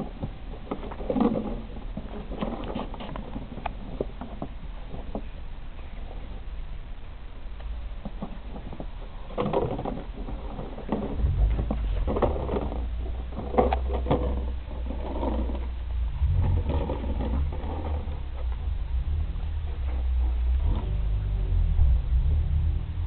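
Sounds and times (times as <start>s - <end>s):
low rumble: 10.2s - 23.0s.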